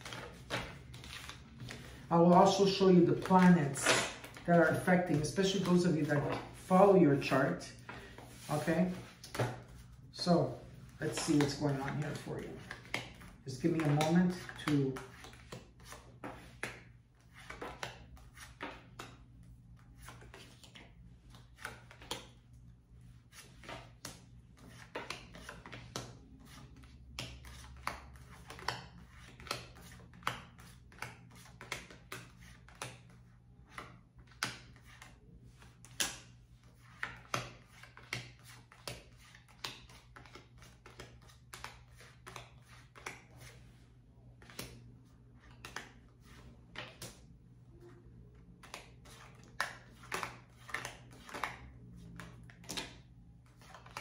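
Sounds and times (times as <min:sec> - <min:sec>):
cards tapping on wooden table: 0:09.0 - 0:09.7.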